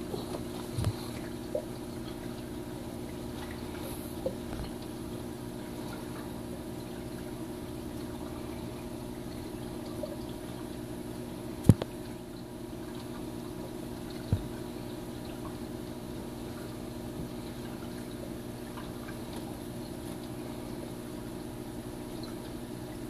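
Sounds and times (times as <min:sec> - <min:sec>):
aquarium equipment humming: 0:00.0 - 0:23.0
water trickling: 0:00.0 - 0:23.0.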